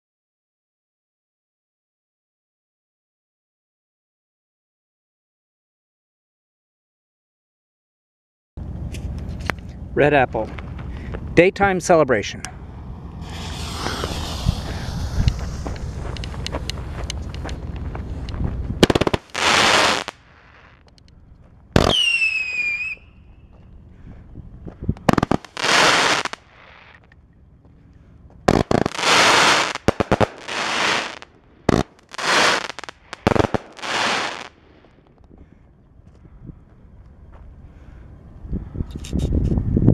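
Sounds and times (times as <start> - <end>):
loud firework hissing: 13.0 - 17.7, 18.8 - 20.8, 25.0 - 27.0, 28.5 - 34.9
falling firework whistle: 13.2 - 16.6, 18.8 - 20.8, 21.8 - 23.5, 25.1 - 27.0, 28.5 - 34.6
firework pops: 13.2 - 17.8, 18.8 - 20.2, 21.8 - 23.0, 25.0 - 27.1, 28.5 - 34.5.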